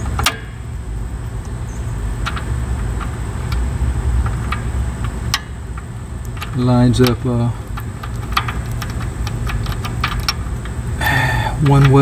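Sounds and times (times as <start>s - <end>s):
light metal clicks: 1.4s - 10.8s, 11.5s - 12.0s.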